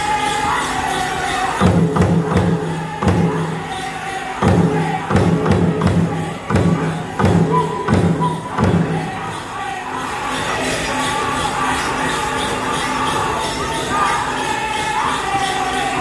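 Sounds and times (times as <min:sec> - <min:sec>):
people singing: 0:00.0 - 0:16.0
big drum beats: 0:01.6 - 0:09.4.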